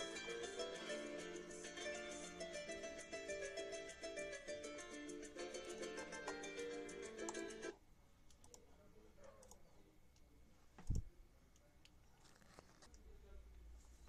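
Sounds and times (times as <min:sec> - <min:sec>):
harp music through small speakers: 0:00.0 - 0:07.7.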